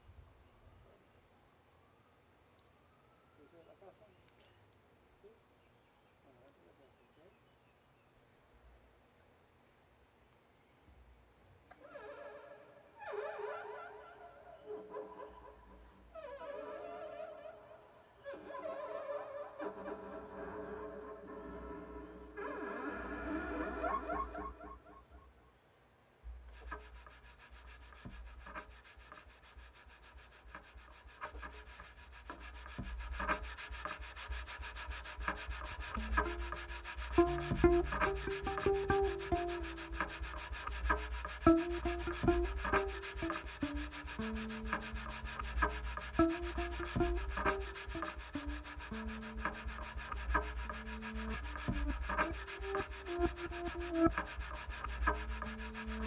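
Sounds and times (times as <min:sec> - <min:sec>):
rubbing and tapping on cello body: 0:26.3 - 0:56.0
low held cello notes: 0:31.7 - 0:56.0
repeating pitched cello figure: 0:31.9 - 0:56.0.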